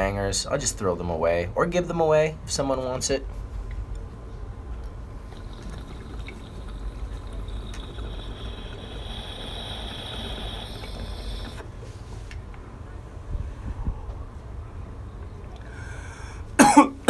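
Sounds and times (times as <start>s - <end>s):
water bubbling through glass pipe: 5.2s - 11.6s.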